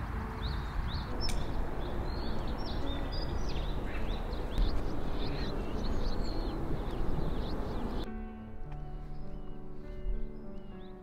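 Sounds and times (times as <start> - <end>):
small birds chirping: 0.0 - 8.1
steady low rumble: 0.0 - 8.1.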